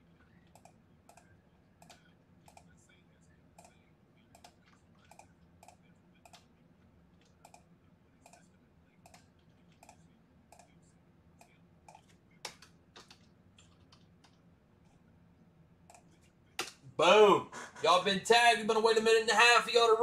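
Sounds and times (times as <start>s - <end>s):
faint low hum: 0.0s - 20.0s
typing on computer keyboard: 4.4s - 6.5s, 11.9s - 14.4s.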